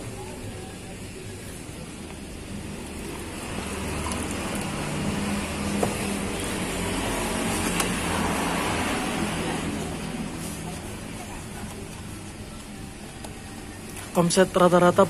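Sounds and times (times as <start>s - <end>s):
vehicle passing on road: 2.4s - 12.4s.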